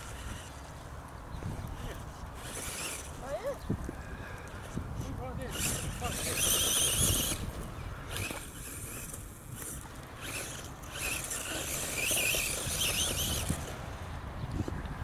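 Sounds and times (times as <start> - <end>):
toy truck motor whining: 0.0 - 0.6, 1.7 - 3.5, 5.4 - 13.8
tyres scrabbling over gravel: 5.6 - 13.9.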